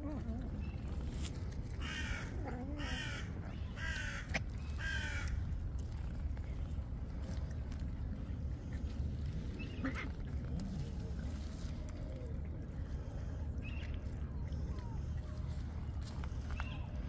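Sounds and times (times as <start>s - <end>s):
low background rumble: 0.0s - 17.0s
crow cawing: 3.8s - 5.4s.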